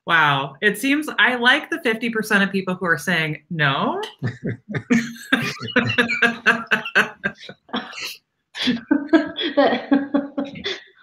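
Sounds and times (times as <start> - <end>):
unclear talk: 3.0 - 10.8
woman laughing: 4.2 - 10.8.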